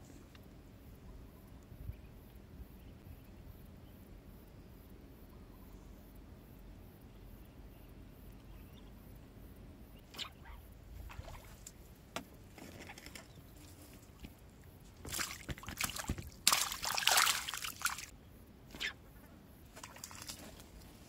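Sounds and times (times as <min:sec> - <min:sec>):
fish splashing and flapping: 0:15.0 - 0:18.1, 0:19.8 - 0:20.6.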